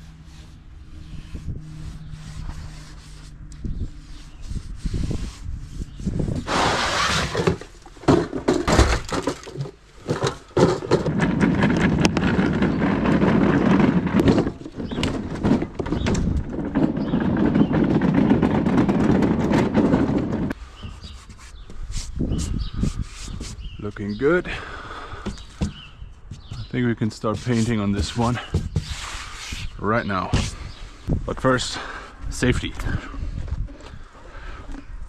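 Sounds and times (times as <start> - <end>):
scrapes: 0.0 - 35.0
trolley wheels rumbling on asphalt: 10.0 - 20.6.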